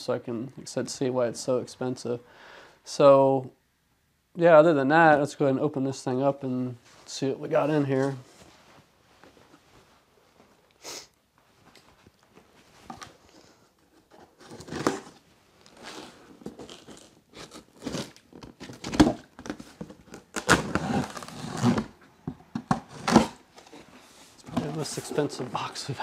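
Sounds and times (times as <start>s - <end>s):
packing tape pulled off box: 14.3s - 21.9s, 22.9s - 23.4s.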